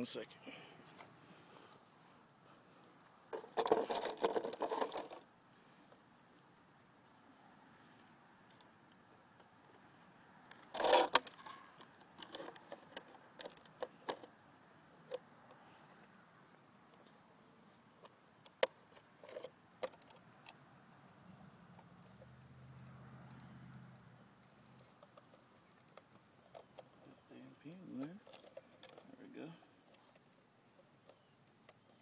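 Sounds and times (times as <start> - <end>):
plastic clattering and clicking: 3.3 - 5.2, 10.5 - 14.3, 18.0 - 20.6, 28.0 - 29.1.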